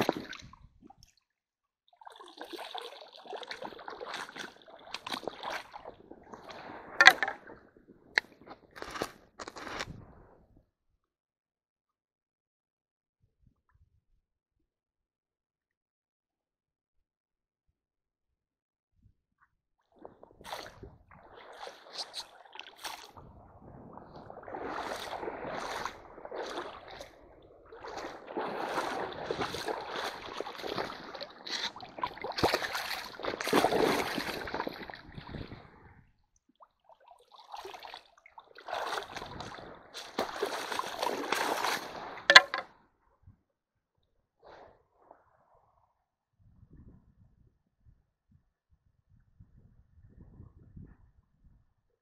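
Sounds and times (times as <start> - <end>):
stream water splashing: 0.0 - 0.5, 2.1 - 7.6, 20.4 - 23.2, 24.1 - 35.5, 37.3 - 42.6.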